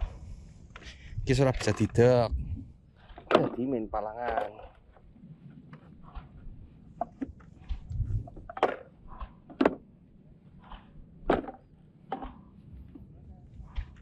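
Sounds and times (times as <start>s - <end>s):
hollow knocks of bamboo poles: 3.0s - 9.9s, 10.6s - 14.0s
low background rumble: 4.8s - 14.0s.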